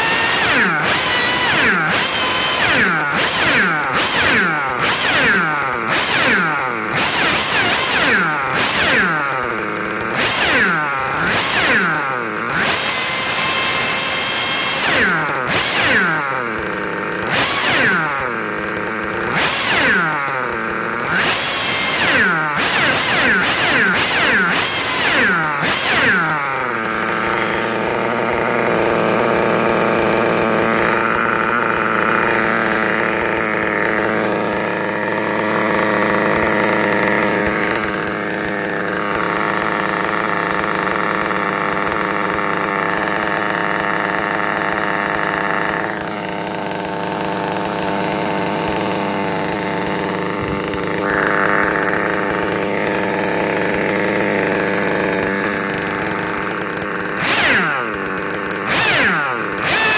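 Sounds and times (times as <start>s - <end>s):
model engine running: 0.0s - 59.9s.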